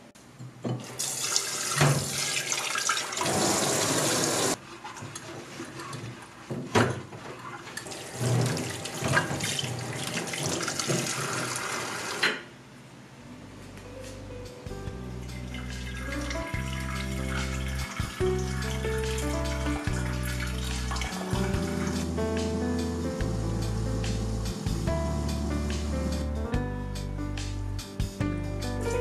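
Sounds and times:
tap water running into glass jar: 15.4 - 22.0.

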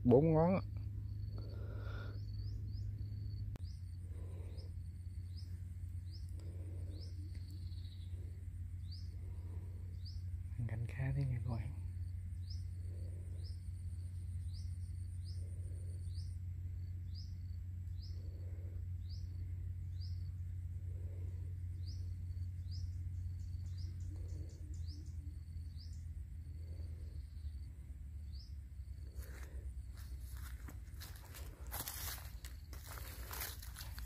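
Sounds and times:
bird chirping: 0.0 - 18.4, 19.0 - 20.6, 21.4 - 28.9
steady low rumble: 0.0 - 34.0
crunching footsteps: 29.1 - 34.0.

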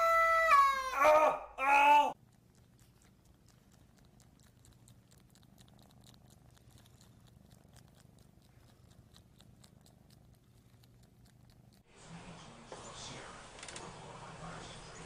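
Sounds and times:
kitten purring: 2.1 - 11.9
soft clicks of tongue licking: 2.2 - 11.8.

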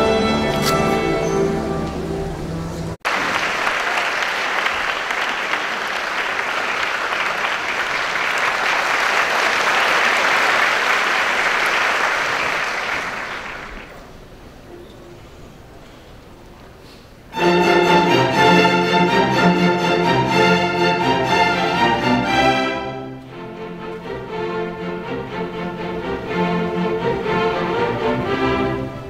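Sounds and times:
music: 0.0 - 3.0, 17.4 - 29.0
audience applauding: 3.0 - 14.1.

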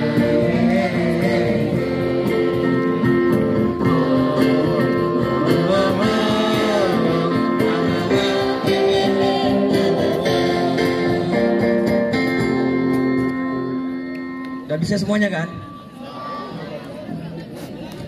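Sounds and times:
person singing: 0.0 - 11.8
guitar strumming steady beat: 0.0 - 14.7.

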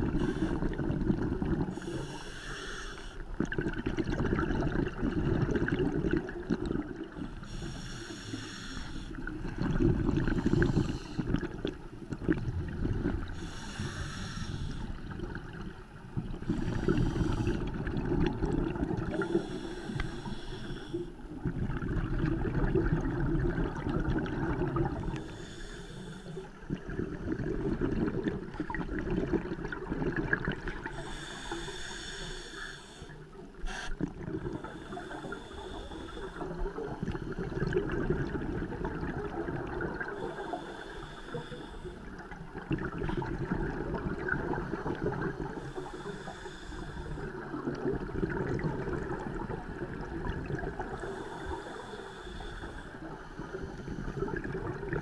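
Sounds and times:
regulator inhale hiss: 0.0 - 0.8, 1.6 - 3.3, 7.1 - 9.4, 10.2 - 11.5, 13.2 - 15.2, 16.4 - 17.8, 19.1 - 21.4, 25.0 - 26.6, 30.8 - 37.5, 40.0 - 42.2, 45.3 - 47.5, 50.8 - 54.4
gurgling exhaled bubbles: 0.0 - 2.2, 3.3 - 7.4, 9.2 - 14.0, 14.6 - 20.3, 21.2 - 25.3, 26.6 - 31.6, 33.9 - 40.7, 42.0 - 55.0.

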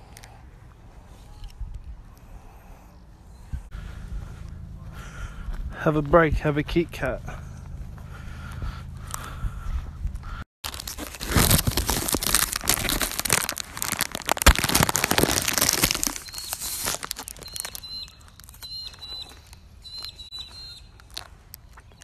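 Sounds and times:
wrapper crinkling and tearing: 10.6 - 19.4
faint high chirps: 16.2 - 22.0.

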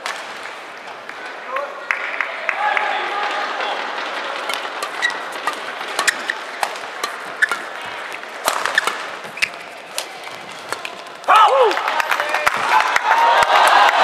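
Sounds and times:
court shoes squeaking: 3.7 - 11.3
rackets striking shuttlecock: 4.2 - 11.3.

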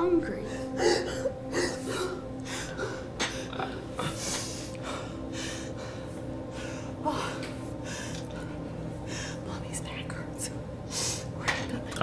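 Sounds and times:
faint steady hum: 0.0 - 12.0
woman crying with gasping breaths: 0.4 - 9.4.

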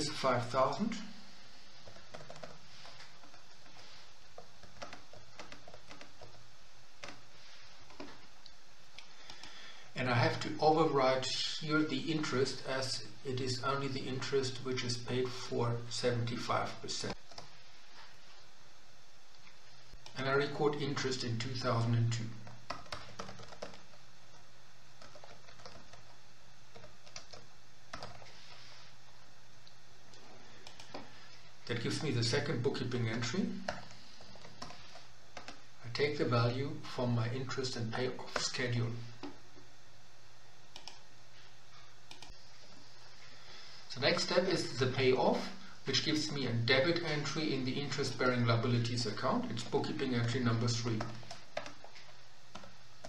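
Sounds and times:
faint steady hum: 0.0 - 53.0
low room hiss: 0.0 - 53.0
keyboard keys clicking: 1.8 - 2.6, 4.6 - 6.4, 22.4 - 23.9, 25.0 - 28.2.

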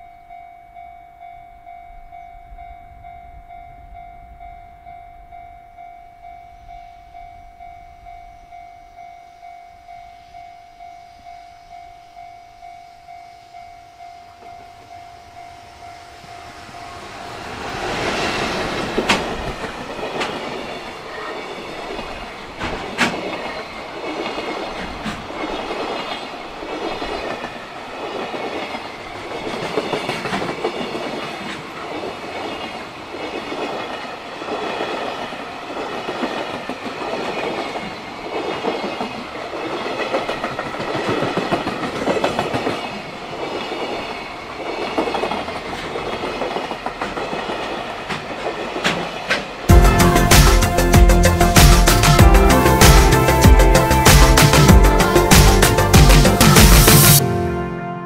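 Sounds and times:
freight train rumbling past: 13.4 - 58.0
wheels clacking over rail joints: 16.6 - 49.7.

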